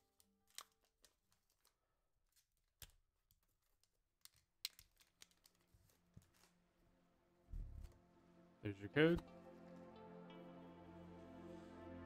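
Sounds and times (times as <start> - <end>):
foil pack crinkling: 0.0 - 6.7.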